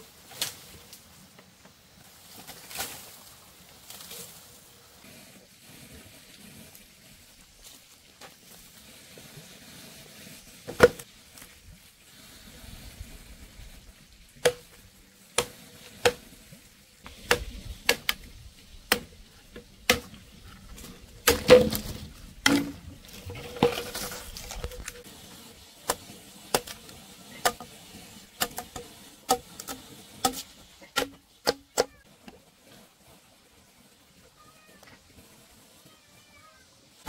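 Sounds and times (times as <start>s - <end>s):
rustling and scraping: 0.2s - 14.0s, 19.4s - 31.0s.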